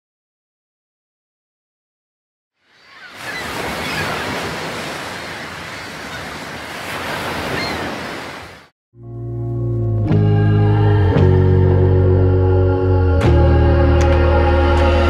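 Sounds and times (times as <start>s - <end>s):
ocean waves breaking: 2.6s - 8.7s.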